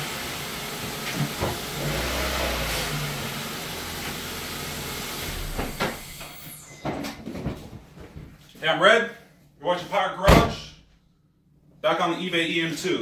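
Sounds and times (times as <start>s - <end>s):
car engine running: 0.0s - 6.4s.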